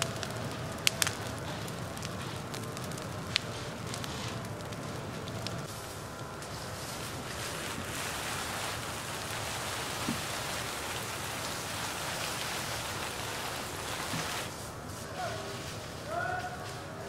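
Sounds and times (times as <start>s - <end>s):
fire crackling in leaf litter: 0.0s - 17.0s.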